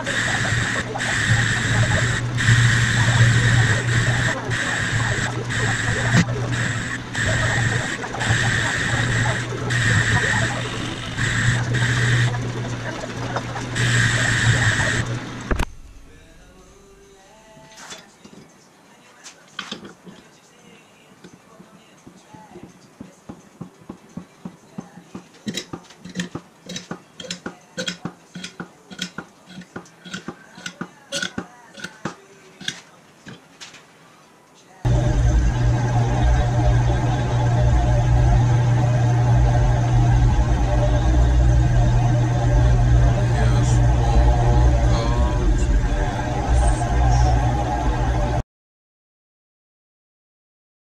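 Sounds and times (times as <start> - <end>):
cutting tool high whine: 0.0 - 15.6, 34.9 - 48.4
lathe motor hum: 0.0 - 15.7, 34.9 - 48.4.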